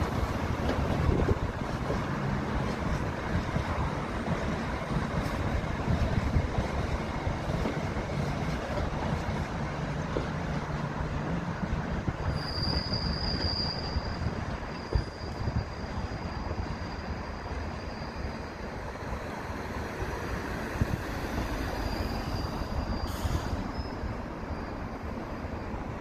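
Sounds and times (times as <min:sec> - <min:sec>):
train wheels rumbling over rails: 0:00.0 - 0:26.0
high squeal: 0:12.1 - 0:18.8, 0:21.6 - 0:26.0.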